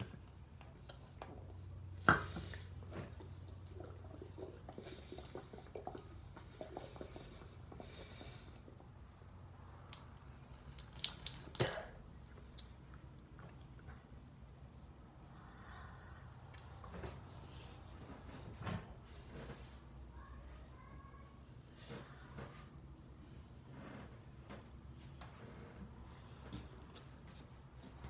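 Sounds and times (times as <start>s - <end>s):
close-up mouth sounds: 3.6s - 8.8s
breathing: 4.8s - 8.6s, 15.2s - 16.4s.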